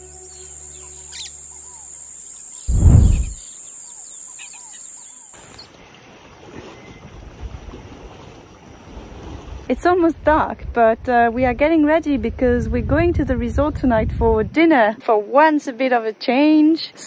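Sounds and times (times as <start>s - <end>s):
high-pitched insect drone: 0.0s - 5.6s
birds chirping: 0.0s - 5.7s
low thump: 2.7s - 3.4s.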